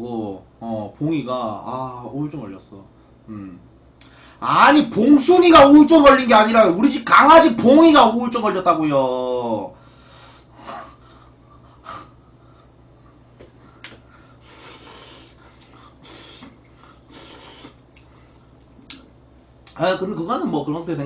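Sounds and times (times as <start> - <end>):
man slurping noodles: 14.4 - 18.6.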